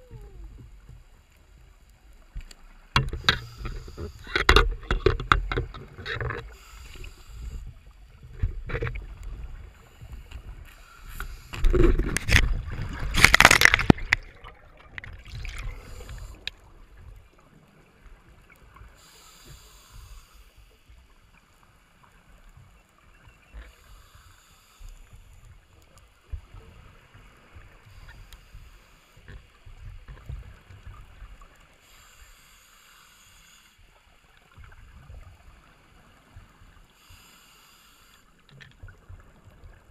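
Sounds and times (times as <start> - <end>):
faint hiss: 0.0 - 4.3, 6.4 - 8.3, 9.6 - 11.7, 15.6 - 16.8, 18.1 - 22.6, 23.6 - 29.9, 30.8 - 34.4, 35.6 - 38.6
water rushing against camera housing: 2.9 - 6.5, 11.1 - 16.6.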